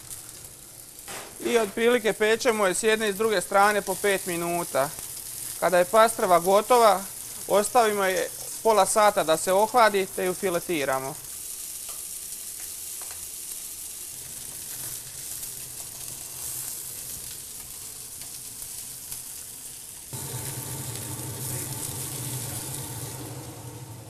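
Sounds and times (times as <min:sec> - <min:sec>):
fish sizzling on griddle: 0:00.0 - 0:24.0
steady low hum: 0:20.2 - 0:24.0.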